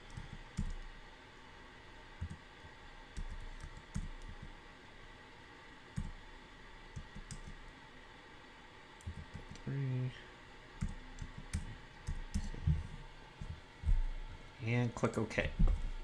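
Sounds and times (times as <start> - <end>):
computer keyboard typing: 0.0 - 0.9, 2.2 - 2.4, 3.2 - 4.5, 6.9 - 7.6, 9.0 - 9.6, 10.8 - 12.6.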